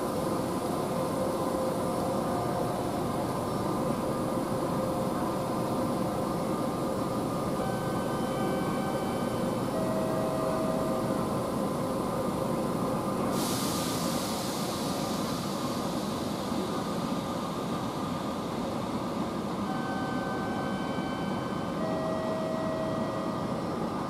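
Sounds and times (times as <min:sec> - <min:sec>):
train equipment humming: 0:00.0 - 0:24.0
sharp hiss of released air: 0:13.3 - 0:17.1.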